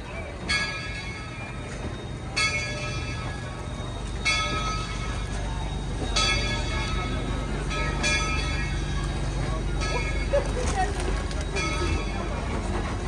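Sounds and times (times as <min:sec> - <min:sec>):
coaches rumbling along track: 0:00.0 - 0:13.0
locomotive bell ringing: 0:00.0 - 0:13.0.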